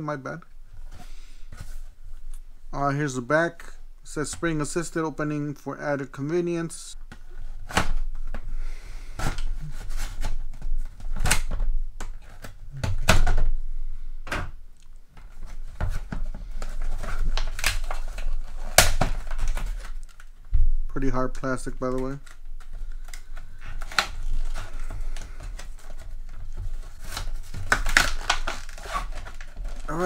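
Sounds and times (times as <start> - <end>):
plastic packaging crackling: 14.8 - 20.5, 21.3 - 30.0.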